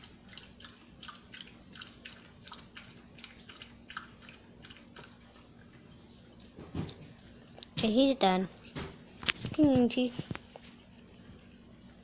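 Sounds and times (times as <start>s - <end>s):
dog lapping water: 0.0s - 8.0s.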